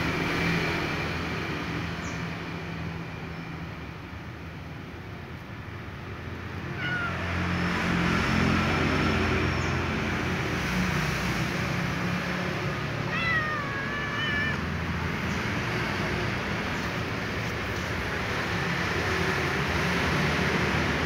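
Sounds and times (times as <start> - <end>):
cat meowing: 6.6 - 7.6, 12.7 - 15.1.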